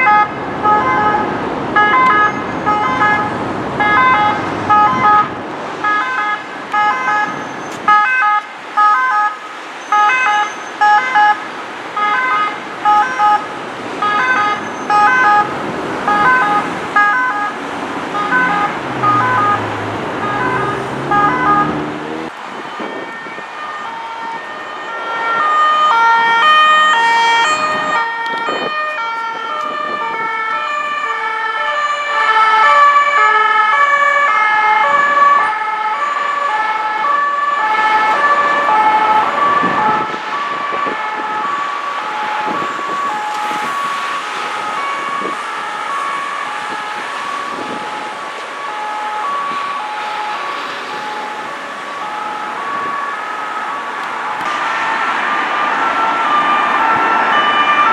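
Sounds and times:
motorway traffic: 0:00.0 - 0:57.9
two-tone emergency sirens: 0:00.0 - 0:57.9
vehicle engine passing: 0:17.6 - 0:22.4.

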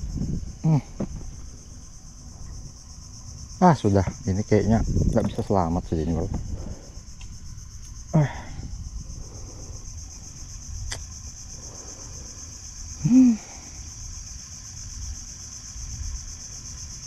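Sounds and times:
low rumble: 0:00.0 - 0:12.9
insects droning: 0:00.0 - 0:17.0
man grunting: 0:00.6 - 0:01.0, 0:08.2 - 0:08.6, 0:13.0 - 0:13.6.

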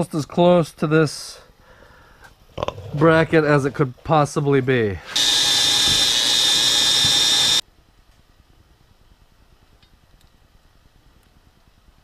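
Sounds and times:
welder arc hissing: 0:05.1 - 0:07.6.

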